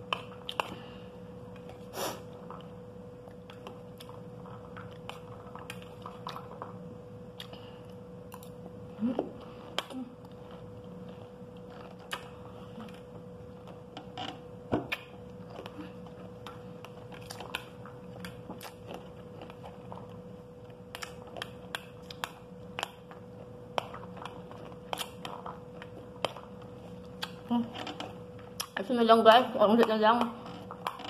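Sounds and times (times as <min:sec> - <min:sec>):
chewing crunchy seeds: 0:14.9 - 0:28.9.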